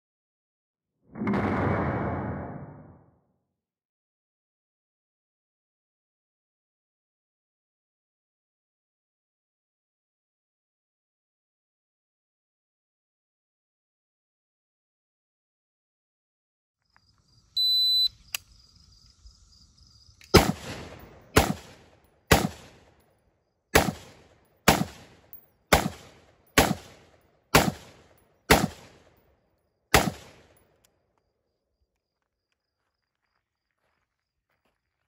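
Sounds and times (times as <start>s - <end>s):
shot timer beep: 17.6s - 18.1s
gunshots with echo: 20.3s - 23.0s, 23.8s - 29.2s, 29.9s - 30.6s.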